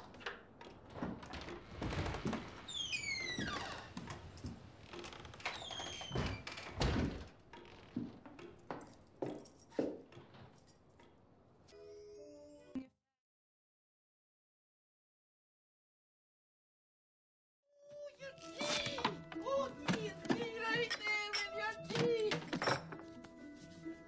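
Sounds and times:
door hinges creaking: 0.0 - 8.7.

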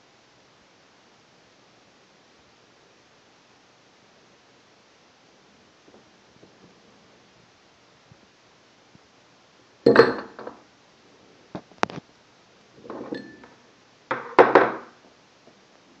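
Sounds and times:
forks clattering against glass: 13.0 - 13.5
short ringing tone: 13.1 - 13.5.

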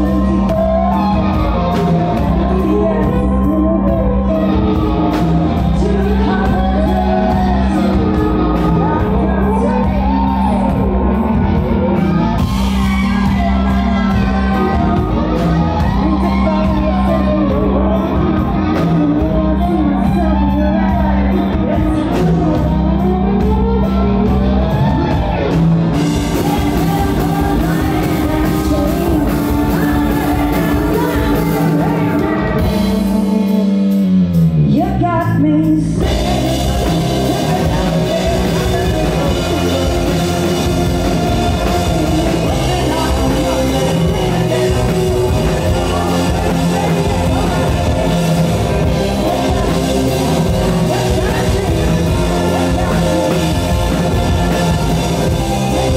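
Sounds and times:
woman singing: 0.0 - 34.0, 34.7 - 55.9
live rock band playing: 0.0 - 55.9.

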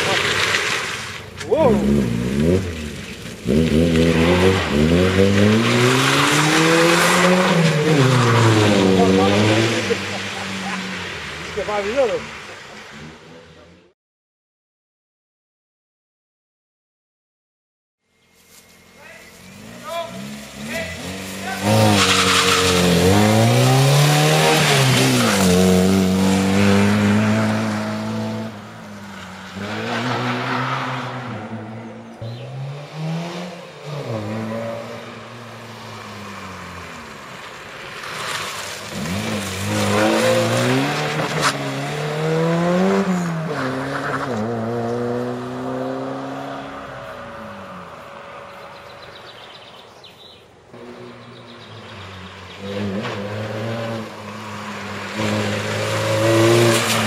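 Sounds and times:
tyres sliding on gravel: 0.0 - 13.2, 18.3 - 27.7, 35.8 - 41.6
rally car engine revving: 0.0 - 13.8, 18.8 - 37.2, 38.0 - 47.8, 50.7 - 57.0.

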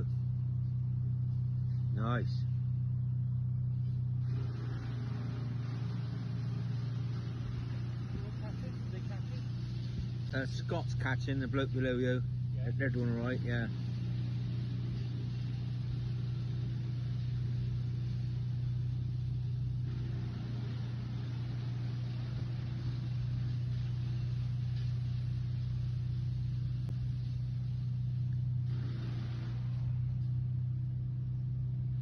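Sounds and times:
machinery engine droning: 0.0 - 32.0.

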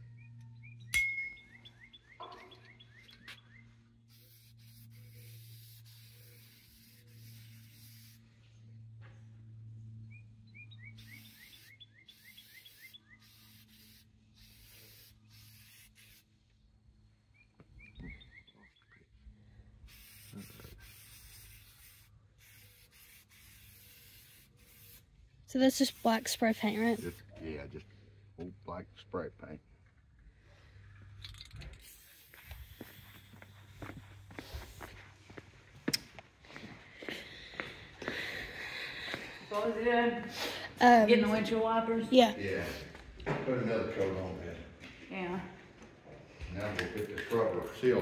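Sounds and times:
spray paint can hissing: 4.1 - 8.2, 11.0 - 16.3, 19.9 - 27.2, 31.7 - 33.6
low hum: 6.2 - 12.1
songbird trilling: 10.1 - 13.4.

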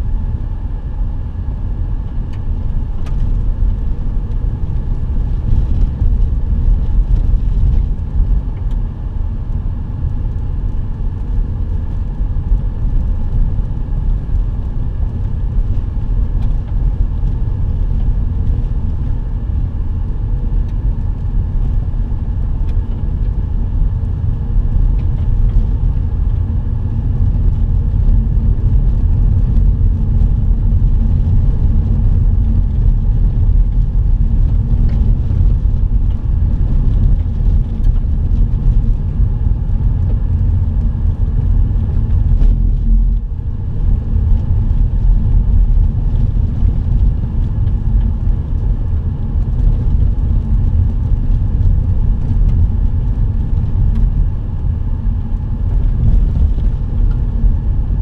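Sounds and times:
vehicle driving on dirt road: 0.0 - 58.0.

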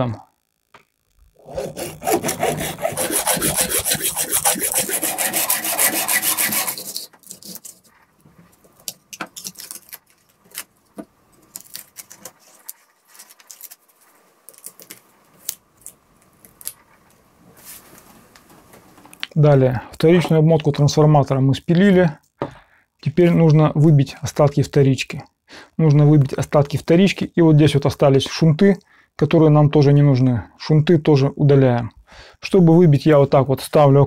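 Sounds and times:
hacksaw cutting copper wire: 1.4 - 7.9.

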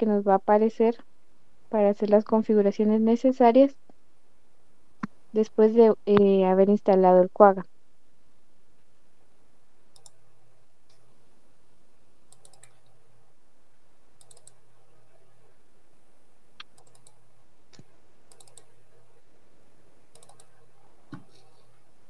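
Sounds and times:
faint steady hiss: 0.0 - 22.0
computer mouse clicking: 9.9 - 10.2, 12.3 - 12.9, 14.2 - 14.6, 16.6 - 18.7, 20.1 - 21.5.

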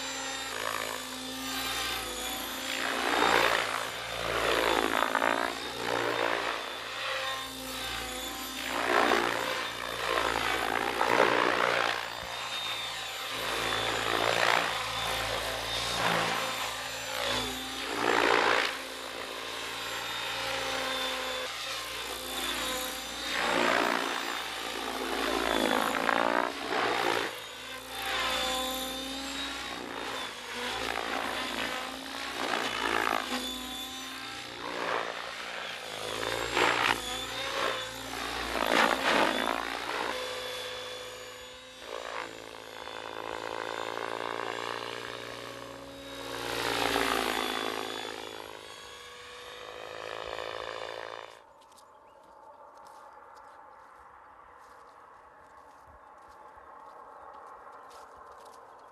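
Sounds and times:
rc helicopter rotor whine: 0.0 - 58.9.

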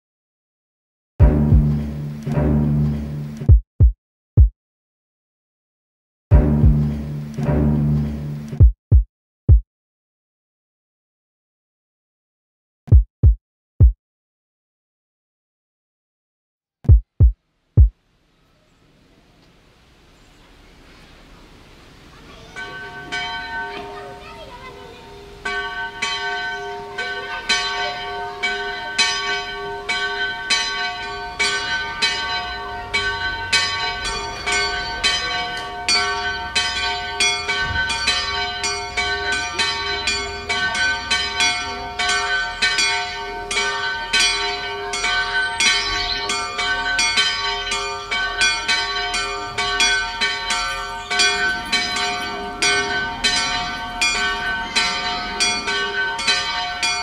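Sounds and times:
church bells ringing: 22.2 - 57.0.

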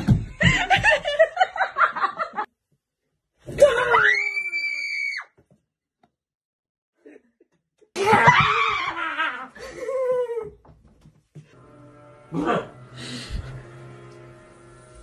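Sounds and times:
people laughing and shrieking: 3.5 - 5.2, 8.0 - 10.6
woman screaming: 3.6 - 5.3, 8.0 - 9.4.

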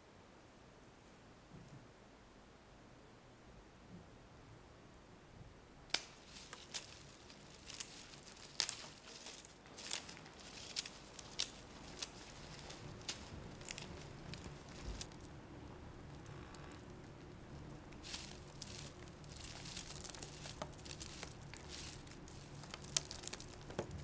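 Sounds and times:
flowers and stems crushed and torn: 5.9 - 24.0.

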